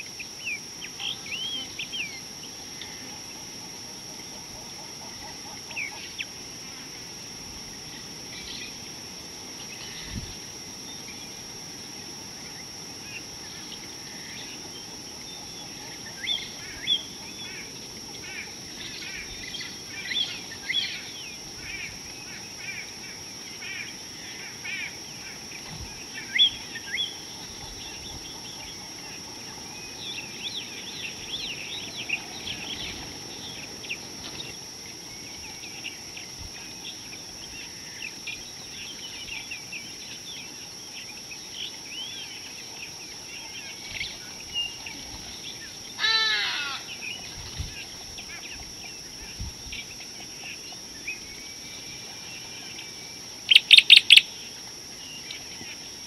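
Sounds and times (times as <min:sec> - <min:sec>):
outdoor hiss: 0:00.0 - 0:56.0
small birds chirping: 0:23.6 - 0:55.9.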